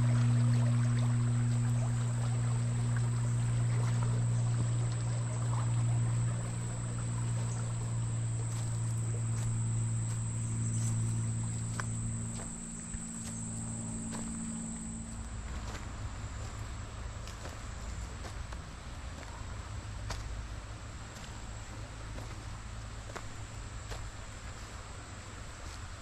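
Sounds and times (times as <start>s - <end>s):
high insect drone: 0.0s - 18.0s
low mechanical hum: 0.0s - 26.0s.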